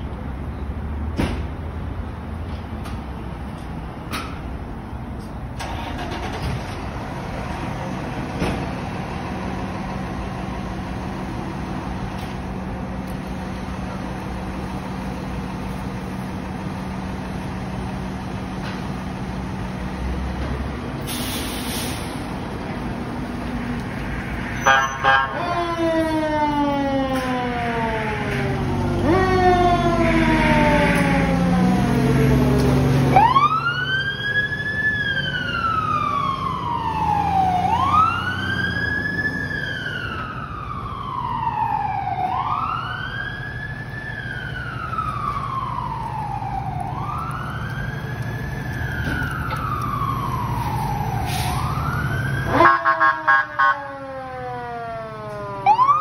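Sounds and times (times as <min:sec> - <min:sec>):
truck engine rumble: 0:00.0 - 0:56.0
fire truck siren: 0:05.6 - 0:06.4, 0:07.6 - 0:56.0
loud short horn blasts: 0:24.6 - 0:25.4.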